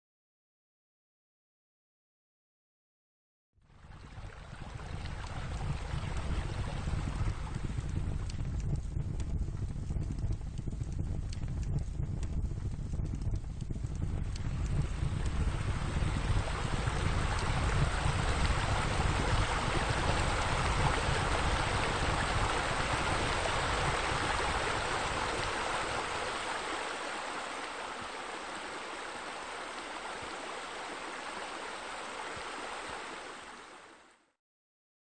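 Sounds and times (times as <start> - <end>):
rushing splashing water: 3.8 - 8.3, 14.5 - 34.2
deep rumble: 3.9 - 28.4.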